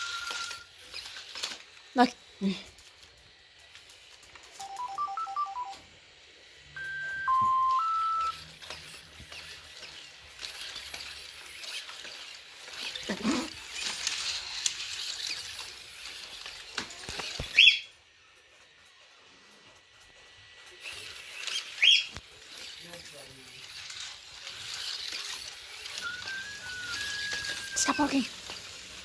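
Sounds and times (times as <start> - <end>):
servo motors whirring: 0.0 - 4.6, 6.3 - 29.0
electronic tone phrase: 4.6 - 5.8, 6.8 - 8.4
rising electronic chirp: 4.6 - 5.8, 6.7 - 8.5.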